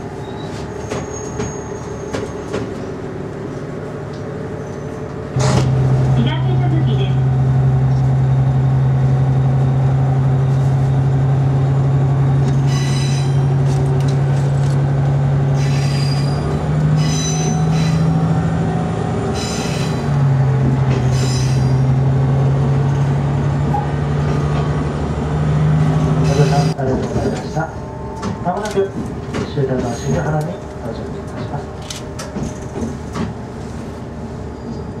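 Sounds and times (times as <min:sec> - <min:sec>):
diesel railcar engine drone: 0:00.0 - 0:35.0
train wheels squealing: 0:00.1 - 0:02.5, 0:04.6 - 0:05.1, 0:12.6 - 0:13.6, 0:15.6 - 0:18.2, 0:19.3 - 0:20.1, 0:21.0 - 0:21.9, 0:26.2 - 0:28.3, 0:34.4 - 0:35.0.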